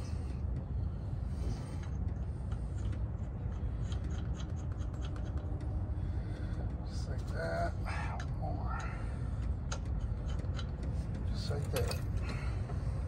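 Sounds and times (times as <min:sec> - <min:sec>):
metallic ticks and scratches: 0:01.6 - 0:07.4, 0:08.2 - 0:12.2.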